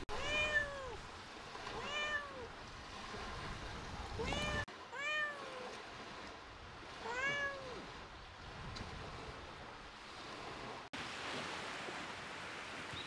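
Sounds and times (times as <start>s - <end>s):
cat meowing: 0.1s - 1.0s, 1.8s - 2.5s, 4.2s - 5.7s, 7.1s - 7.8s.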